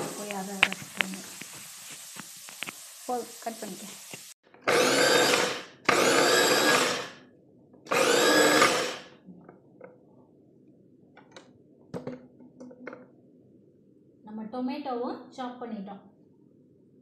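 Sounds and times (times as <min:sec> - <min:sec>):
electric food chopper running: 0:04.6 - 0:07.2, 0:07.9 - 0:09.2.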